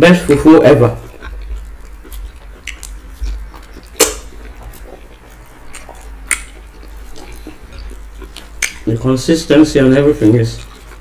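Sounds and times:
wet chewing mouth noises: 0.2 - 11.0
sharp mouth clicks: 1.0 - 8.9.

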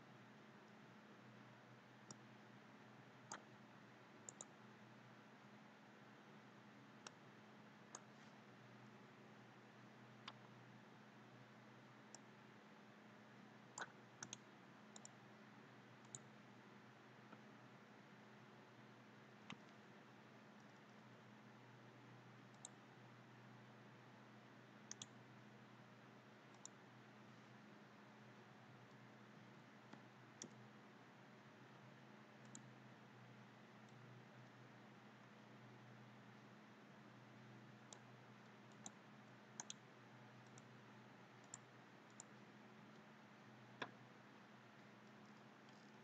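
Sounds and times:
faint steady hum: 0.0 - 46.0
computer mouse buttons clicking: 3.3 - 3.5, 4.3 - 4.5, 7.9 - 8.1, 10.2 - 10.5, 13.8 - 15.2, 22.5 - 22.8, 24.9 - 25.2, 26.5 - 26.8, 29.9 - 30.6, 32.4 - 32.7, 37.9 - 39.0, 39.6 - 39.8, 41.4 - 43.1.

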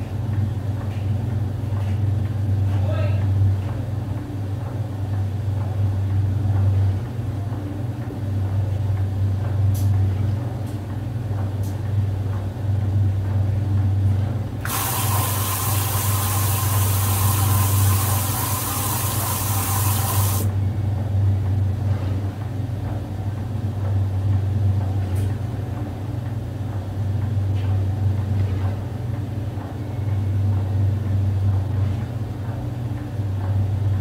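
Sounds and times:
washing machine motor hum: 0.0 - 34.0
water rushing in with hiss: 14.7 - 20.5.

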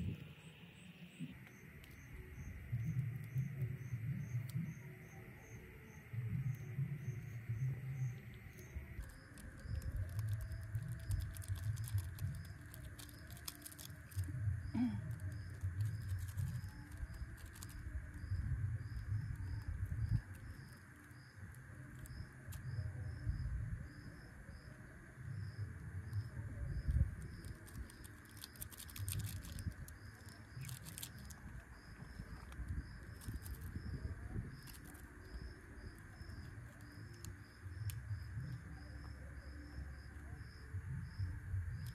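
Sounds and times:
wind buffeting microphone: 0.0 - 0.5, 15.3 - 21.3, 25.3 - 28.1, 29.0 - 38.8
insects chirping: 0.0 - 41.9.

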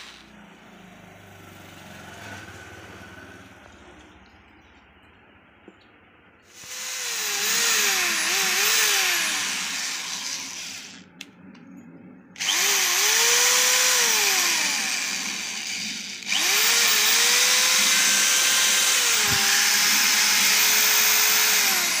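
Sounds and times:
electric screwdriver motor whine: 6.6 - 11.0, 12.4 - 22.0.

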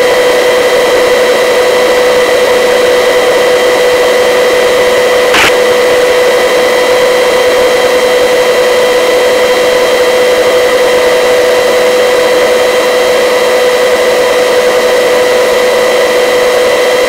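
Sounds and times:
constant whine: 3.9 - 7.7.

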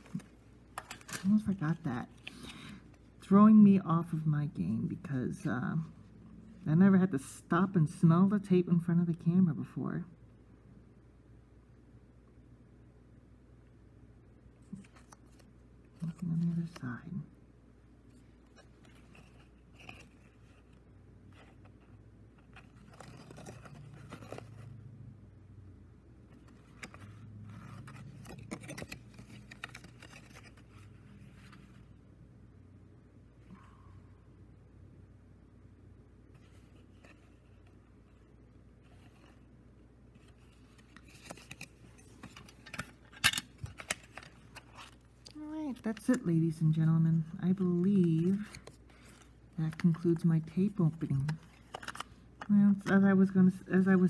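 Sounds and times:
paper rustling and crackling: 0.0 - 2.8, 18.1 - 24.7, 26.4 - 31.9, 40.2 - 46.3, 47.6 - 53.0.

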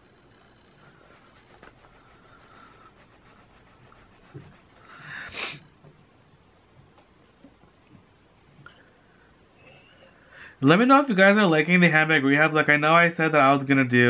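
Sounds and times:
cloth rubbing plastic: 0.8 - 5.6.

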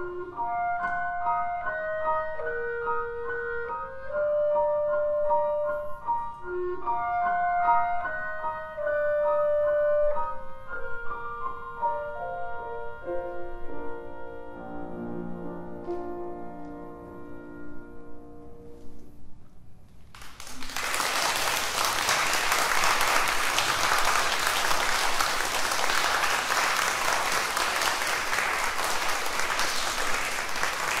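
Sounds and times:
audience applauding: 20.1 - 31.0.

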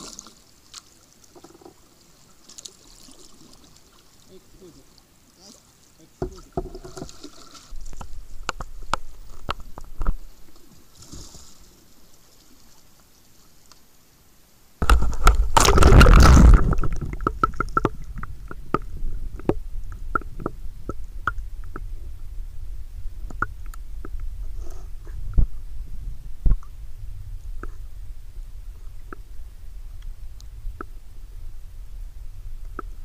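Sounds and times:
water sloshing and splashing: 0.0 - 13.0, 14.8 - 21.9
loud rushing splash: 14.8 - 17.2
low rumble: 14.8 - 33.0.

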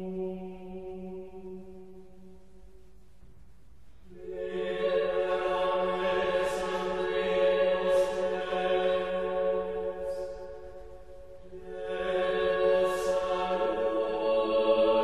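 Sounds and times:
voices singing a hymn in chorus: 0.0 - 1.8, 4.1 - 15.0.

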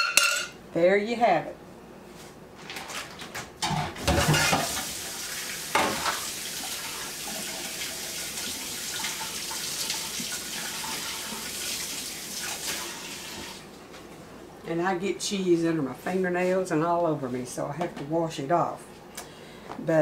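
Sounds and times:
tap running into sink: 5.7 - 6.3.

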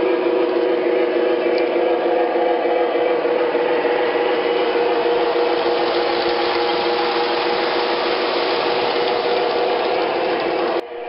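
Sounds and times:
wheels rumbling on metal rails: 3.3 - 11.0
model train motor whirring: 3.9 - 10.8.

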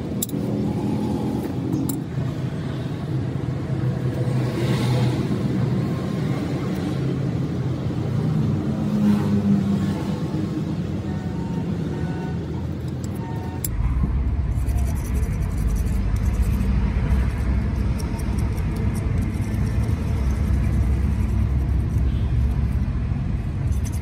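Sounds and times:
low engine-like rumble: 9.6 - 24.0.

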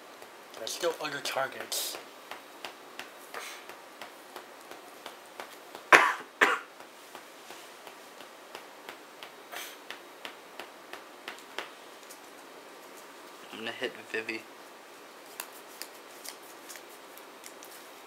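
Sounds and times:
playing cards tapping and clicking: 0.2 - 5.9, 6.7 - 13.1, 15.3 - 17.9
person coughing: 5.9 - 6.7.

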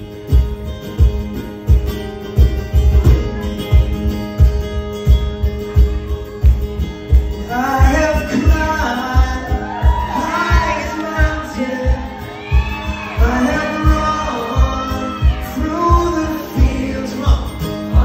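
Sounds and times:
acoustic guitar playing: 0.0 - 18.0
man singing: 7.4 - 18.0.

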